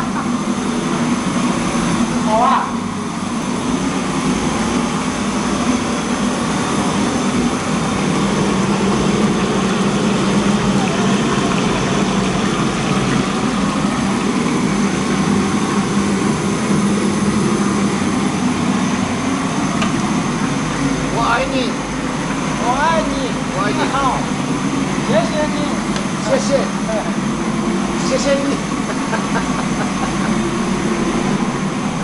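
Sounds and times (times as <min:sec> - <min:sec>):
gas wok range roaring: 0:00.0 - 0:32.0
low hum: 0:26.8 - 0:32.0.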